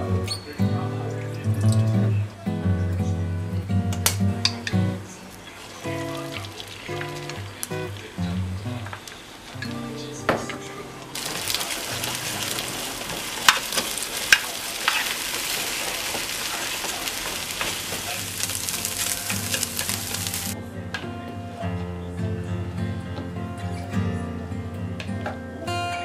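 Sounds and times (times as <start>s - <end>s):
soft guitar music: 0.0s - 26.0s
egg sizzling in a pan: 5.4s - 8.2s, 11.1s - 20.6s
chopsticks tapping a pan: 11.2s - 20.6s.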